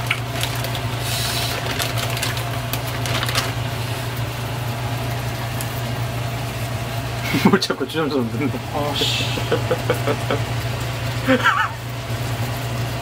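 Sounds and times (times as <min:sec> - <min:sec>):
low mechanical hum: 0:00.0 - 0:13.0
hiss of food cooking: 0:00.9 - 0:01.6, 0:08.4 - 0:13.0.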